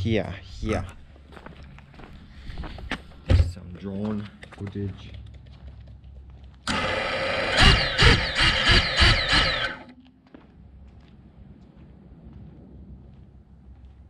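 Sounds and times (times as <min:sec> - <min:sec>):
drone motors whirring whine: 0:06.7 - 0:09.9.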